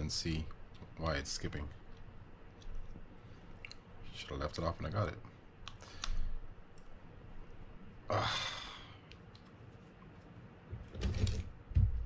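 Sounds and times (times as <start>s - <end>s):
person sighing: 8.1s - 9.0s.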